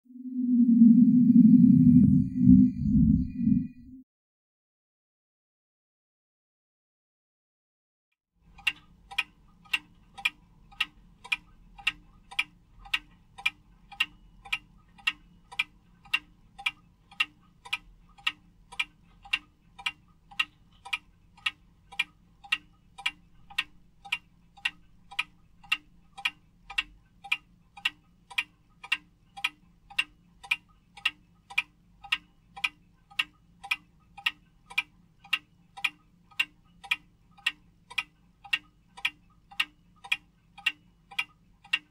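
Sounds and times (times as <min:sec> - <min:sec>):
wall clock ticking: 0:08.4 - 0:41.9.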